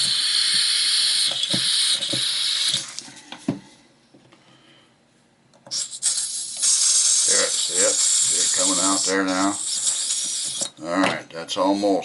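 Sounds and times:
butane gas hissing: 0.0 - 3.2, 5.7 - 10.8.

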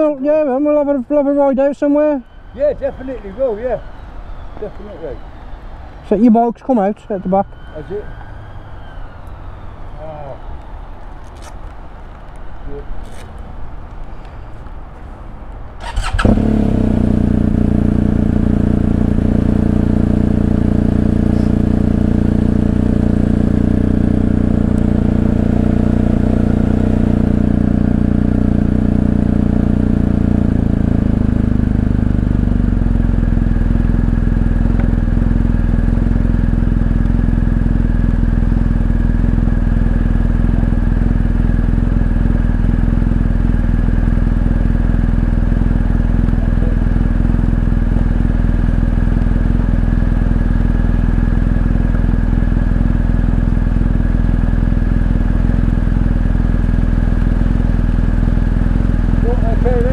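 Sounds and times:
motorcycle engine idling: 15.8 - 59.9
motorcycle engine starting: 15.8 - 59.9.

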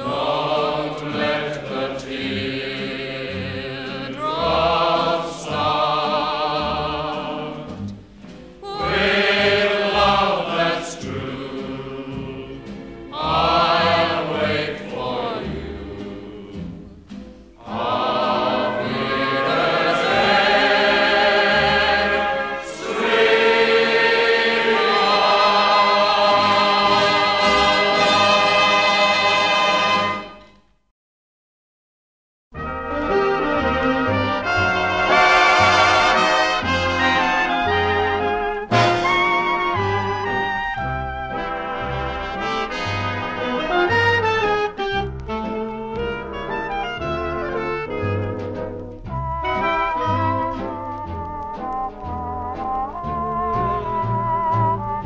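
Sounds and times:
choir singing: 0.0 - 8.0, 8.6 - 16.9, 17.6 - 30.4, 33.1 - 44.8.

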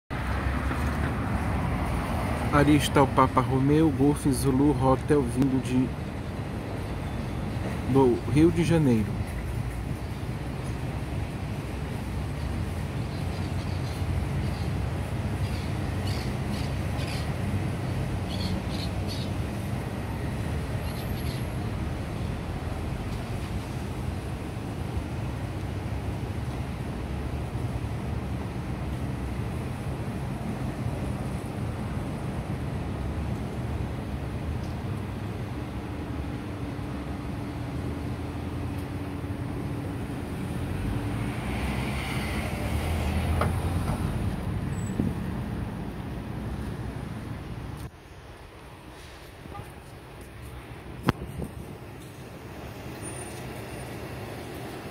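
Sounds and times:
small bird chirping: 18.3 - 19.4.

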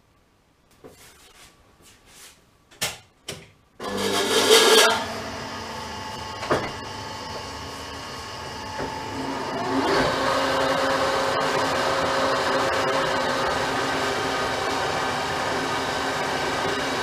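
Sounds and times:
lathe motor humming and whining: 3.8 - 17.0.

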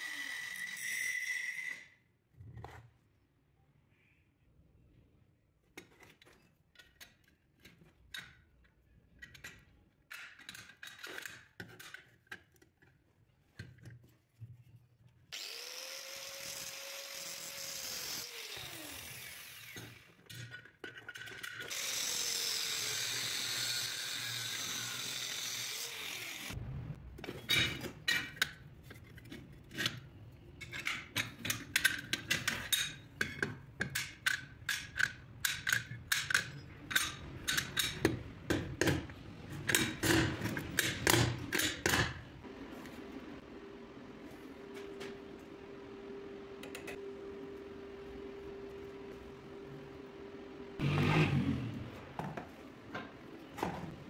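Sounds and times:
angle grinder cutting steel: 0.0 - 1.9, 15.4 - 20.1, 21.7 - 26.6.

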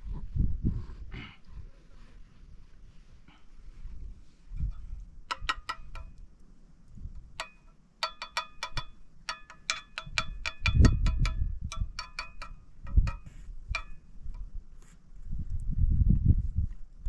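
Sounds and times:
metal spoon clinking on metal plate: 7.4 - 14.1.

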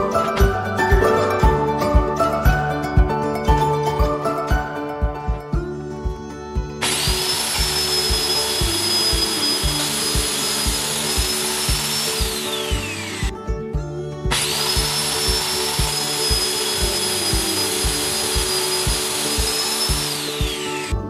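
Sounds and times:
circular saw cutting metal: 6.8 - 13.3, 14.3 - 21.0
saw blade winding down: 6.8 - 13.3, 14.3 - 21.0.

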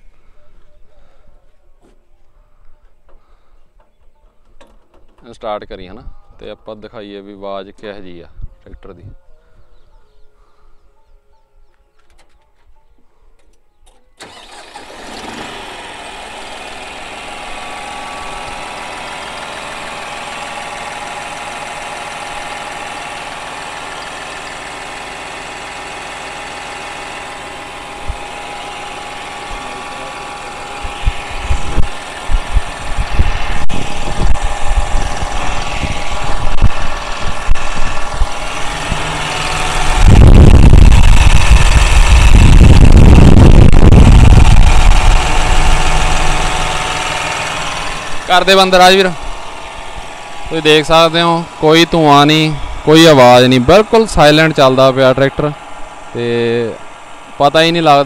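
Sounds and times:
diesel engine idling: 14.2 - 58.0
low buffeting rush: 27.8 - 58.0.

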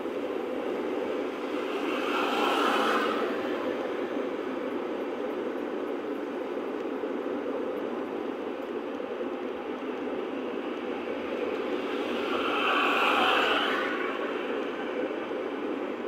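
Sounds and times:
car road and engine noise: 0.0 - 16.0.

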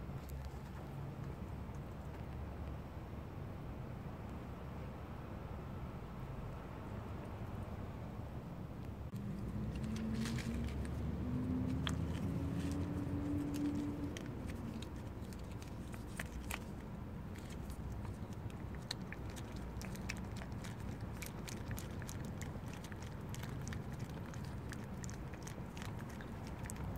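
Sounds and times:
cat licking and chewing: 0.1 - 2.7, 9.1 - 26.9.

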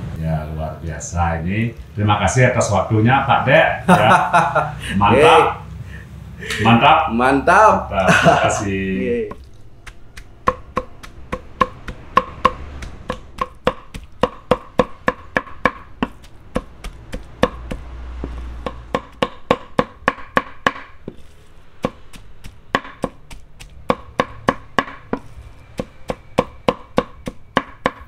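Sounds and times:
knife chopping on wooden block: 9.3 - 28.0.

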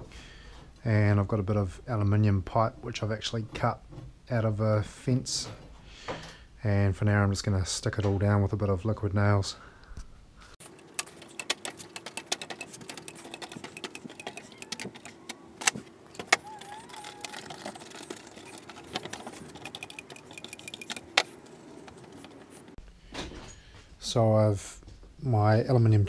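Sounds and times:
pipes clicking and knocking on metal: 10.7 - 22.6.

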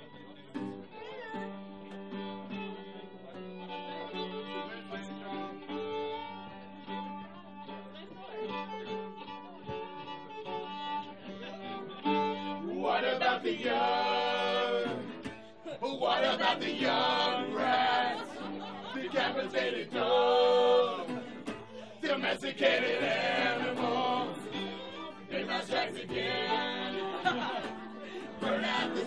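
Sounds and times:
acoustic string instruments: 0.0 - 29.0
voices singing together: 12.6 - 29.0.

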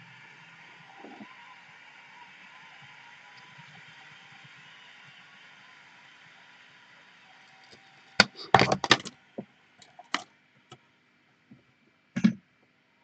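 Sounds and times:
hard objects knocking and clicking: 8.2 - 9.1, 9.9 - 10.2, 12.2 - 12.4.

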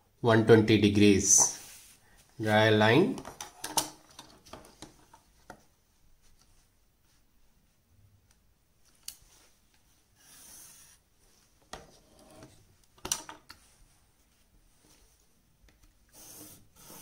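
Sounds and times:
pencil scratching along ruler: 10.2 - 11.0, 16.1 - 17.0
plastic rulers sliding on paper: 10.2 - 11.0, 16.1 - 17.0.

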